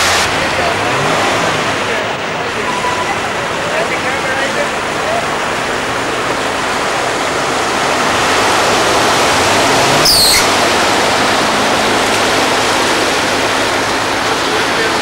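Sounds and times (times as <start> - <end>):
floodwater rushing and sloshing: 0.0 - 15.0
low engine hum: 0.0 - 15.0
high falling squeak: 10.0 - 10.5.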